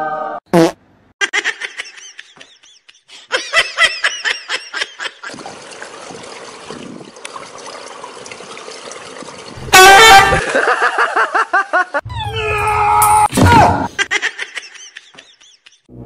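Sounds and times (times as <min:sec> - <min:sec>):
person laughing: 0:01.2 - 0:05.4, 0:10.2 - 0:12.1, 0:13.9 - 0:15.9
short loud cry: 0:09.7 - 0:10.4.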